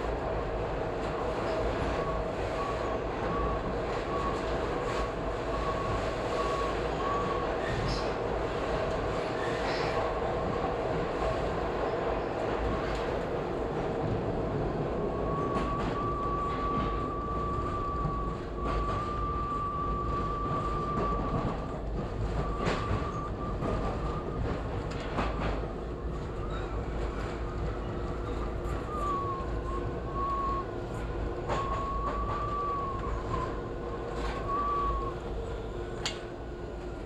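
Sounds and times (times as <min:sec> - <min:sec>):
subway train rumbling in tunnel: 0:00.0 - 0:37.0
high wheel squeal: 0:31.4 - 0:35.2.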